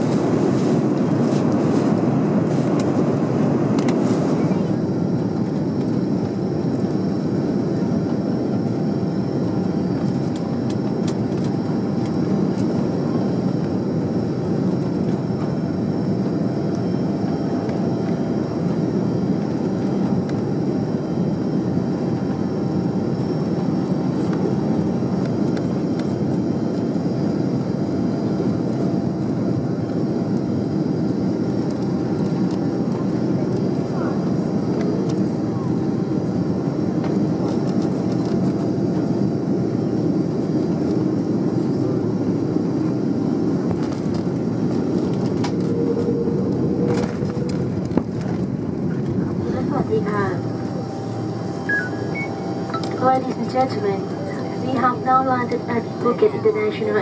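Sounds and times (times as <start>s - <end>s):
airflow and engine drone in cabin: 0.0s - 57.0s
faint steady whines: 0.0s - 57.0s.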